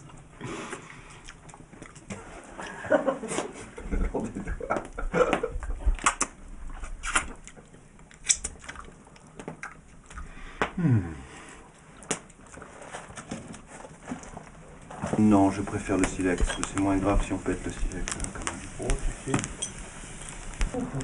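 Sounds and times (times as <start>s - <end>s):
clicks and knocks of hard objects: 13.2s - 20.8s.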